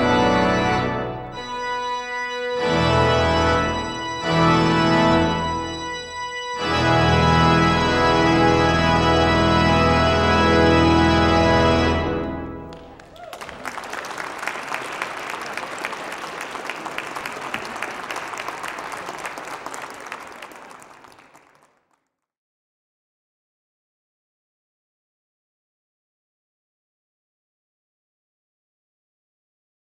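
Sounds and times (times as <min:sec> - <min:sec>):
pipe organ chord: 0:00.0 - 0:13.0
audience applause: 0:12.7 - 0:21.9.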